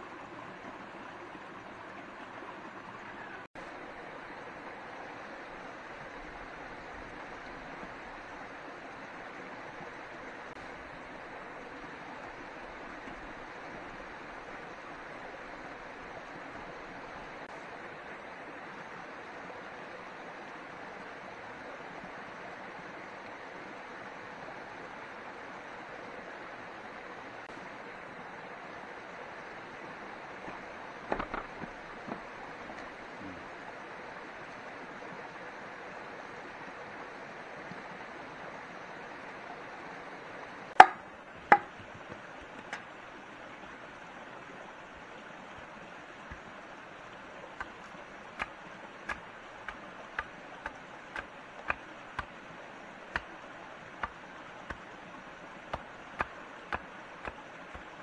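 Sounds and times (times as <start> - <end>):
chopping on wood: 40.8 - 42.8, 55.7 - 57.9.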